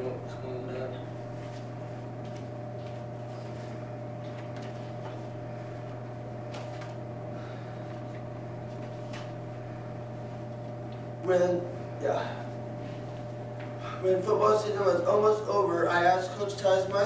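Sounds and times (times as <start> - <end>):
room hum drone: 0.0 - 17.0
paper rustling: 6.5 - 7.0, 8.7 - 9.4.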